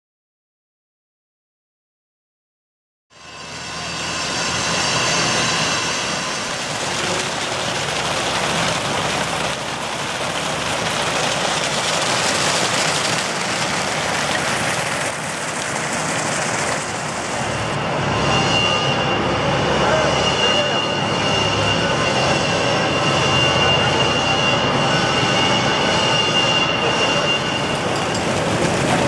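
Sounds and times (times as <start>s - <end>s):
fountain water splashing: 6.0s - 17.8s, 27.6s - 29.0s.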